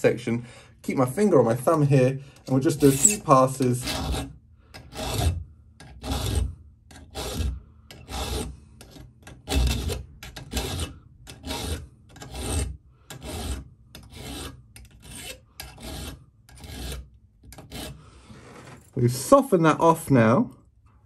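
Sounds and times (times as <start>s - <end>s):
flat file rasping on metal: 2.5s - 18.1s.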